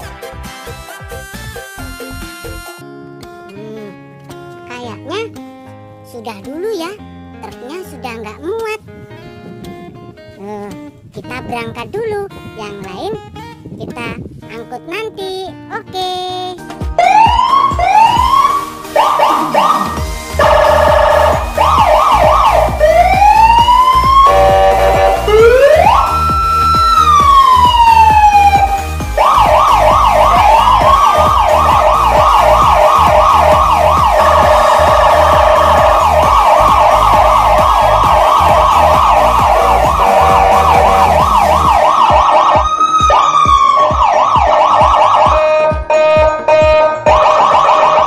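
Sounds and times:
electronic siren wailing and yelping: 17.0 - 48.0.

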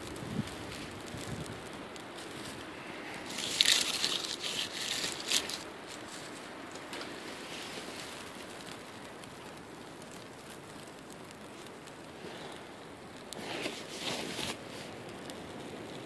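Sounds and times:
small wood fire crackling: 0.0 - 16.0
twigs crinkling and snapping: 0.0 - 16.0.

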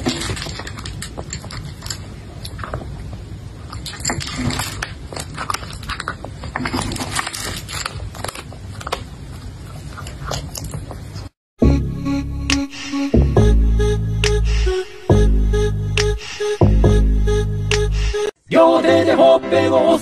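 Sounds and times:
cat crunching dry kibble: 0.0 - 11.2.

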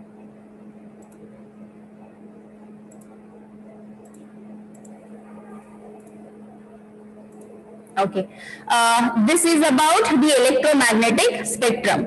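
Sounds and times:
steady low hum: 0.0 - 12.0
faint short clicks: 1.0 - 1.3, 2.9 - 3.2, 4.0 - 5.0.

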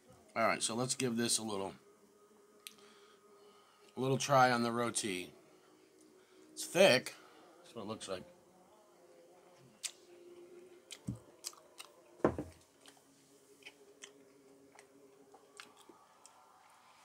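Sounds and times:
man chewing food: 9.5 - 16.5.

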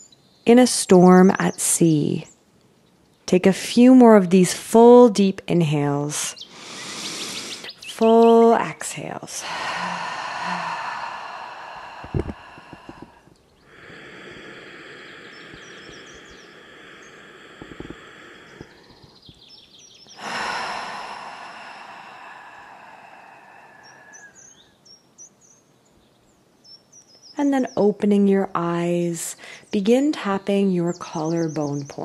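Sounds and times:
birds chirping faintly: 0.0 - 32.0
woman breathing deeply: 6.4 - 7.8, 9.4 - 19.4, 20.1 - 24.8.

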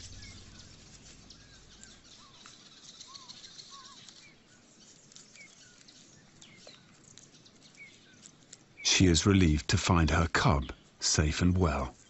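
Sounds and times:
whistled bird calls: 0.0 - 4.4.

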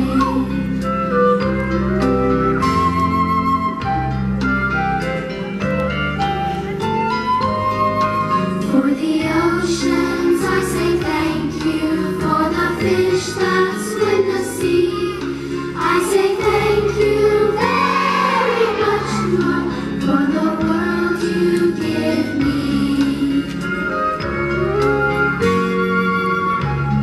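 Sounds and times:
backing music track: 0.0 - 27.0
children singing: 8.7 - 23.6.

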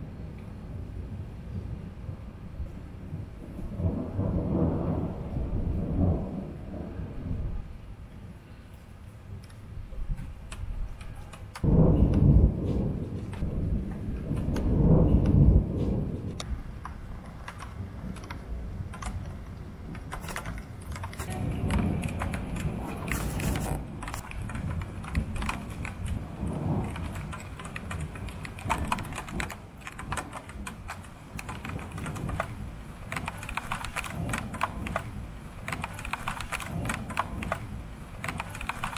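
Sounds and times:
raindrops tapping: 9.4 - 38.9
low steady rumble: 11.6 - 33.4, 36.7 - 38.3.

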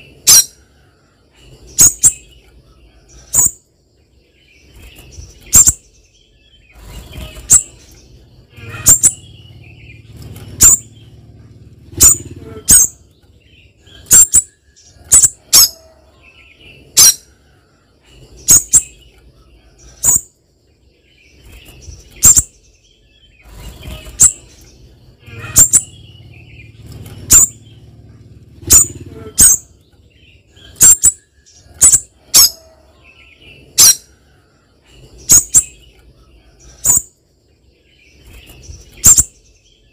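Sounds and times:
bird sharp high-pitched calls: 0.0 - 3.7, 4.7 - 20.4, 21.4 - 37.2, 38.2 - 39.9
bird fluttering in cage: 6.7 - 8.3, 10.0 - 12.4, 26.7 - 29.1, 38.2 - 39.2.

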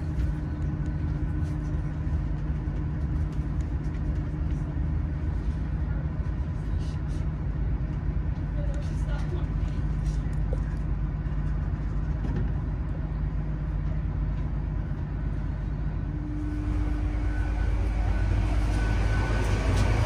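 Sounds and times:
train low rumble: 0.0 - 20.0
steady hum: 13.1 - 20.0.

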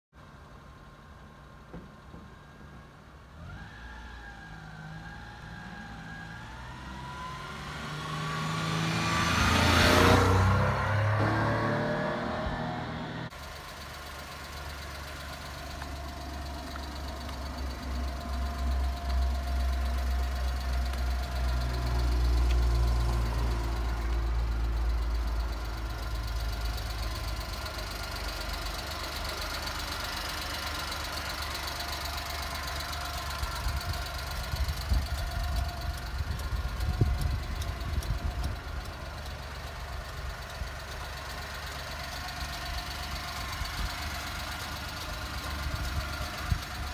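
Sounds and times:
small truck engine idling: 13.2 - 46.9
sharp ticks: 33.4 - 39.4.

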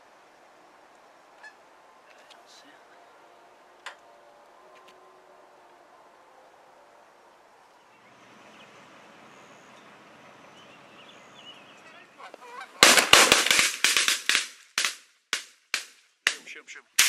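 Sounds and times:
geese honking: 11.3 - 13.4
shotgun blasts: 12.8 - 16.5.

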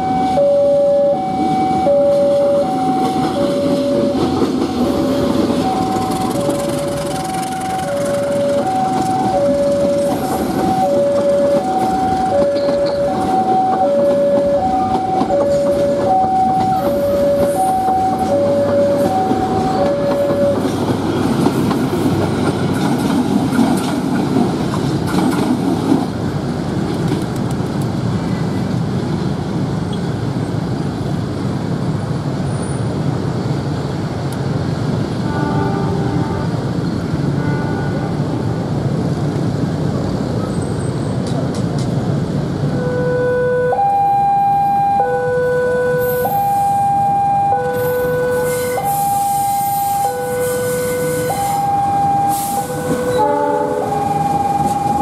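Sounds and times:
two-tone crossing alarm: 0.0 - 21.0, 42.7 - 55.0
train wheels rumbling on rails: 0.0 - 42.9, 45.2 - 55.0.

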